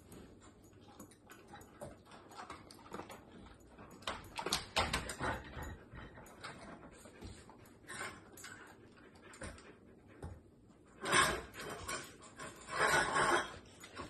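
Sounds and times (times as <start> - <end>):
dog eating from metal tin: 0.9 - 6.5.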